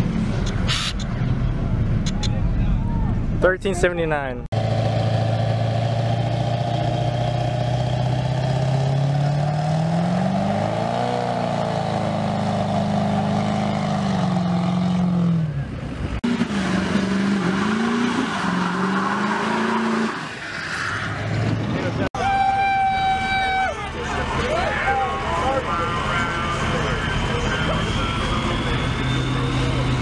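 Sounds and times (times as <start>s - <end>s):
diesel truck engine revving: 4.6s - 22.1s, 23.5s - 30.0s.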